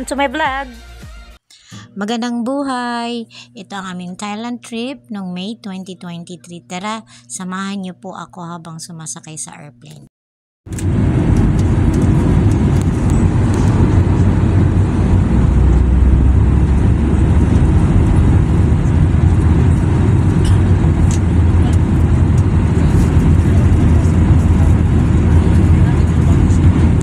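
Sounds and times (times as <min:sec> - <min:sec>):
airliner cabin engine roar: 0:10.7 - 0:27.0.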